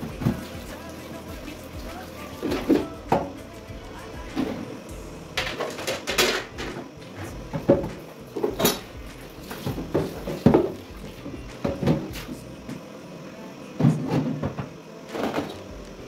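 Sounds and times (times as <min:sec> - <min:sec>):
running tap water splashing: 0:00.0 - 0:03.4.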